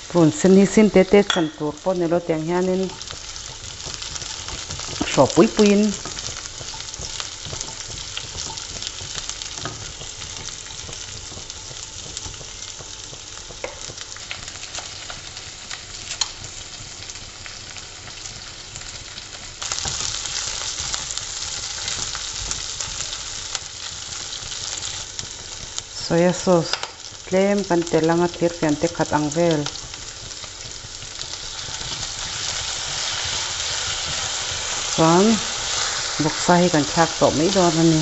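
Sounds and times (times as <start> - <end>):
vegetables sizzling in hot oil: 0.0 - 38.0
spatula scraping a pan: 29.8 - 34.9.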